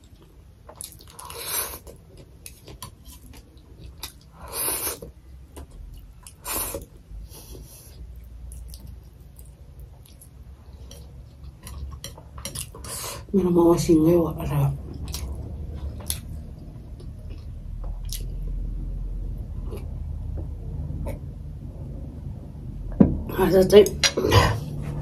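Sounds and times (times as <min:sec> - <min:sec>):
chewing: 0:00.0 - 0:04.3, 0:07.9 - 0:13.0, 0:14.9 - 0:18.5.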